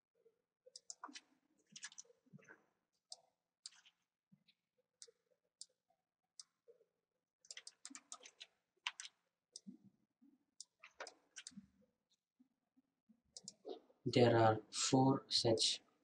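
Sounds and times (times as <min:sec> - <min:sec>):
mouse and keyboard clicks: 0:00.7 - 0:02.1, 0:03.1 - 0:04.0, 0:07.5 - 0:09.7, 0:10.6 - 0:11.6, 0:13.4 - 0:13.8.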